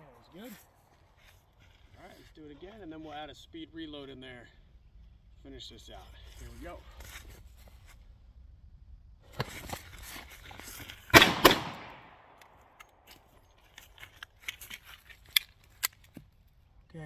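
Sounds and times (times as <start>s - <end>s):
revolver shots echoing: 11.1s - 12.4s.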